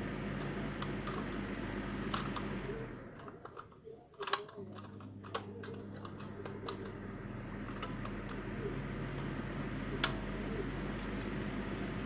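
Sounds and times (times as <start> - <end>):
low electric hum: 0.0 - 12.0
plastic hand mixer parts clicking: 3.2 - 6.9.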